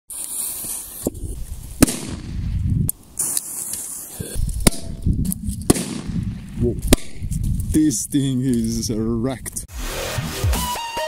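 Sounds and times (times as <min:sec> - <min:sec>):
fuse hissing and sparking: 0:00.1 - 0:02.2, 0:03.0 - 0:04.6
firecracker bangs: 0:01.8 - 0:02.6, 0:05.6 - 0:07.4.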